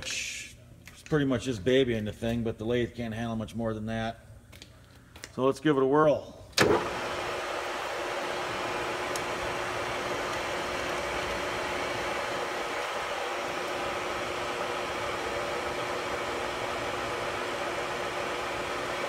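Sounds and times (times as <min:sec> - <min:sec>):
lathe humming: 0:06.6 - 0:19.0.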